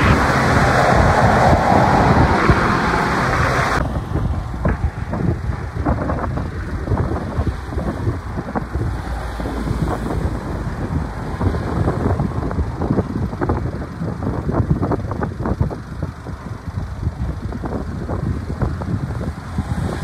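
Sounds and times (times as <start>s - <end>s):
car passing close by: 0.0s - 4.9s
low unsteady rumble: 0.0s - 20.0s
wind buffeting microphone: 0.0s - 20.0s.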